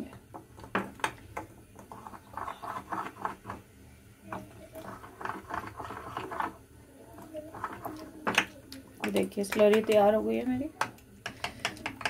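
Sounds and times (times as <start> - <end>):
spoon scraping ceramic bowl: 1.8 - 3.6, 4.3 - 6.6, 7.5 - 8.0.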